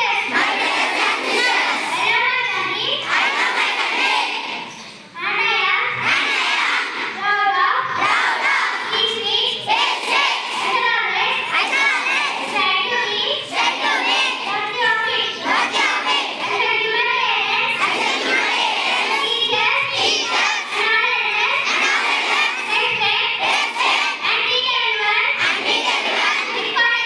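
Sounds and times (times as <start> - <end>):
children reciting in unison: 0.0 - 27.0
girl speaking into a microphone: 1.9 - 3.1, 4.7 - 6.1, 7.1 - 8.0, 8.8 - 9.7, 10.6 - 13.6, 14.4 - 15.4, 16.5 - 17.8, 19.1 - 21.8, 22.5 - 23.4, 24.2 - 25.4, 26.4 - 27.0.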